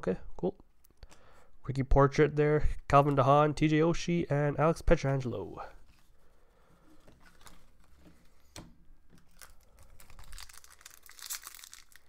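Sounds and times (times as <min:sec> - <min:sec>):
foil wrapper crinkling: 0:09.1 - 0:12.0.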